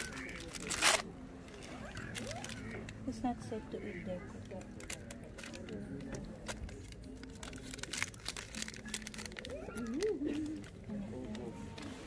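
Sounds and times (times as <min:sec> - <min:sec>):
food wrapper crinkling: 0:00.0 - 0:03.0, 0:04.6 - 0:10.8
low steady background noise: 0:00.0 - 0:12.0.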